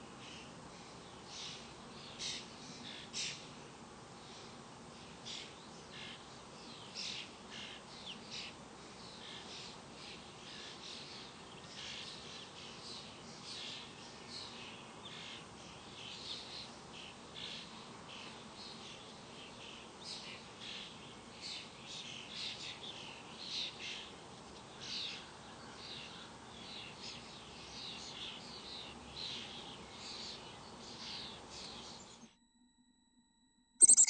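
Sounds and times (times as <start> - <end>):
faint steady hiss: 0.0 - 32.0
fledgling bird begging calls: 33.8 - 34.0.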